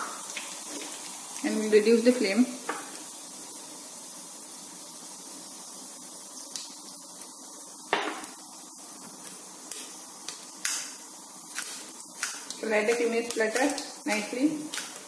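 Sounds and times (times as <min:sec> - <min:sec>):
seeds sizzling in hot oil: 0:00.0 - 0:15.0
sharp pops of seeds: 0:09.1 - 0:15.0.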